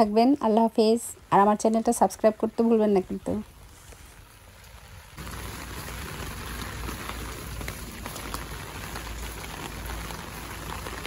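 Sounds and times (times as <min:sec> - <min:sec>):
rain on a wet street: 0:02.9 - 0:11.0.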